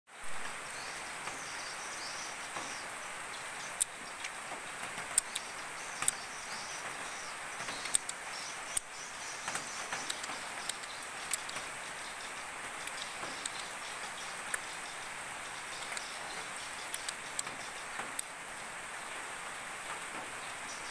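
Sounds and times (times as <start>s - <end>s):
steady outdoor hiss: 0.1s - 20.9s
sharp ticks: 3.8s - 4.4s, 5.0s - 6.2s, 7.6s - 11.7s, 12.8s - 14.8s, 15.7s - 18.3s.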